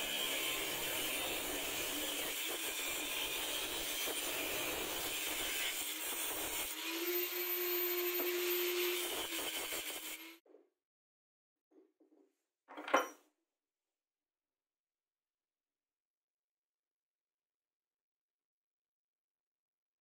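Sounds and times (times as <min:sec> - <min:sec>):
angle grinder cutting metal pipe: 0:00.0 - 0:10.4
grinder whining freely: 0:00.0 - 0:10.4.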